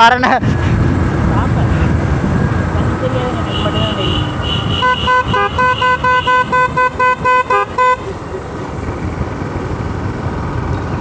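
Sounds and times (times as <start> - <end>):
vehicle horn beeping rapidly: 3.4 - 8.1.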